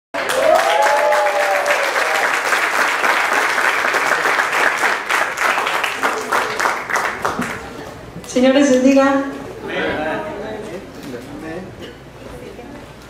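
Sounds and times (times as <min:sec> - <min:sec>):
congregation applauding: 0:00.2 - 0:07.8.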